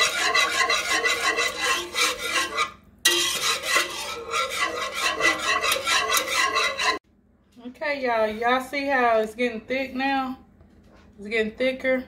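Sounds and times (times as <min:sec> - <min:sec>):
wire whisk scraping metal pot: 0:00.0 - 0:07.0.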